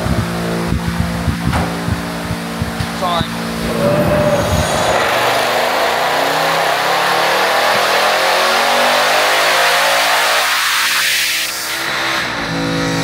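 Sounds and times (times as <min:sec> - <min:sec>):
engine revving at full throttle: 0:00.0 - 0:13.0.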